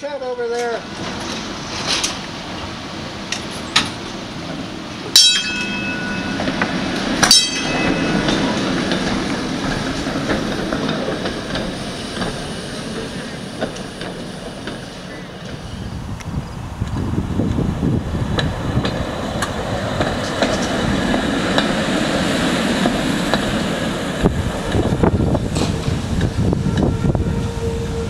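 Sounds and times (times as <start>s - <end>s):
streetcar motors and wheels rumbling: 0.0s - 28.0s
ringing clangs: 5.2s - 8.8s.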